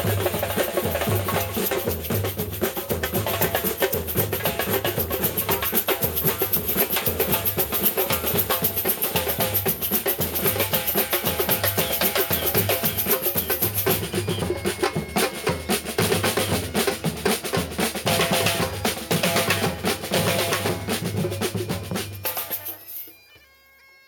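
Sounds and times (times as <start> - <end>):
snare drum rolls: 0.0 - 8.5
drum band playing: 0.0 - 23.1.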